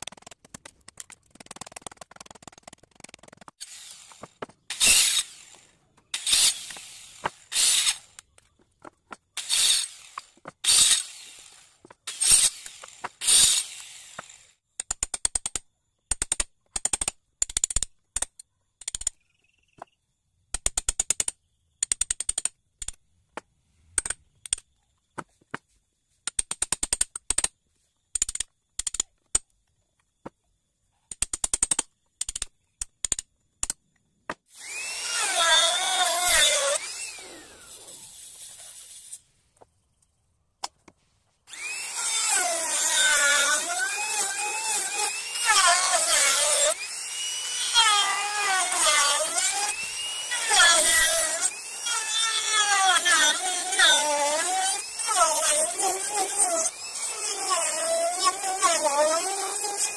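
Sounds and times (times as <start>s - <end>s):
rapid clicking: 0.0s - 3.6s.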